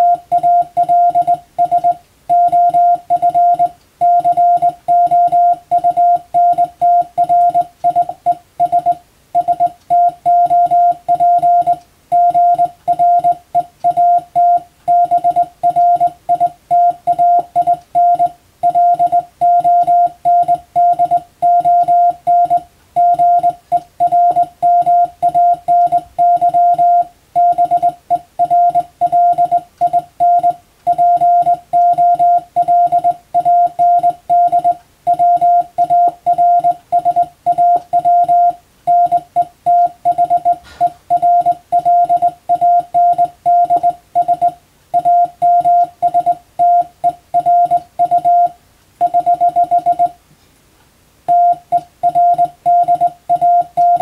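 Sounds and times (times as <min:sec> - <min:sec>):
morse code beeps: 0:00.0 - 0:50.2, 0:51.3 - 0:54.0.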